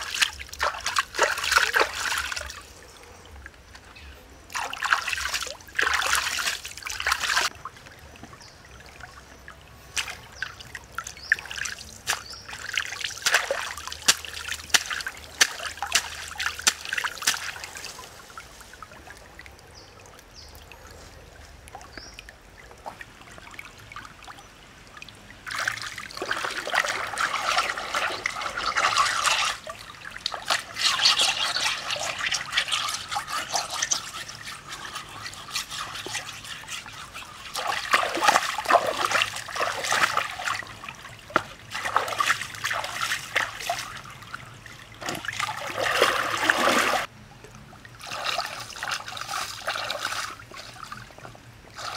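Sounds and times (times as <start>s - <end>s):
stream trickling: 0.0s - 51.9s
water splashing and sloshing: 0.0s - 51.9s
stone scrubbed in water: 12.0s - 17.9s, 30.3s - 40.5s.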